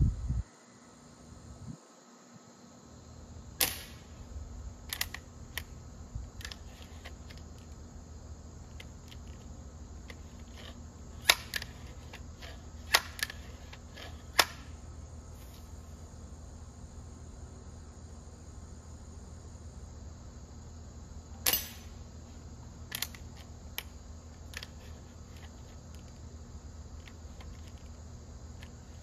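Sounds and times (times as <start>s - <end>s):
air rifle clicks and snaps: 4.9s - 5.7s, 22.9s - 23.9s.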